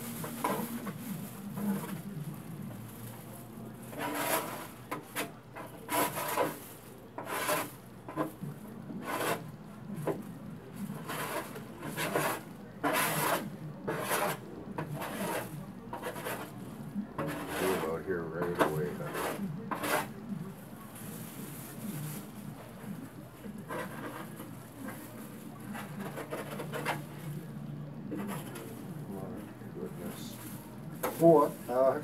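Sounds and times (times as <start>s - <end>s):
scraping a metal grill: 3.8s - 9.4s, 10.8s - 20.2s, 23.6s - 27.4s.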